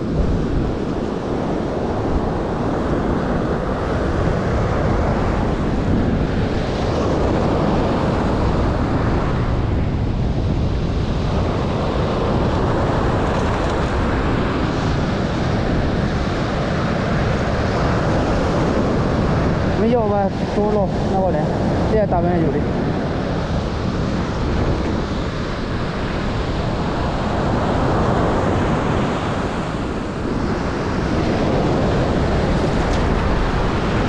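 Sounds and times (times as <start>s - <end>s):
surf breaking on beach: 0.0s - 34.0s
wind buffeting microphone: 0.0s - 34.0s.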